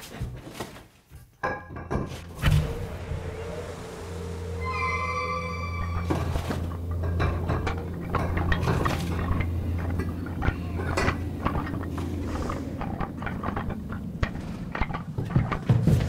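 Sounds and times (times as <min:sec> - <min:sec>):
low hum: 0:01.8 - 0:16.0
held note: 0:02.5 - 0:11.3
bones clattering: 0:06.0 - 0:16.0.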